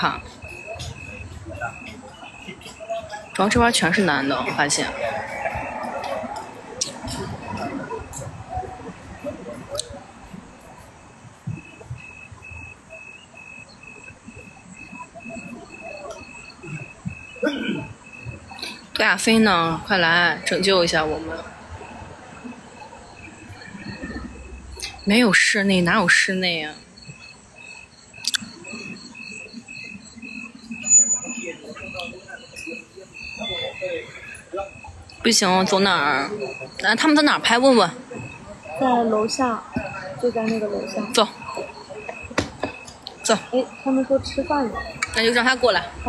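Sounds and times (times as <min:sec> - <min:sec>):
crickets chirping: 0:00.0 - 0:46.0
murmur of voices: 0:00.0 - 0:46.0.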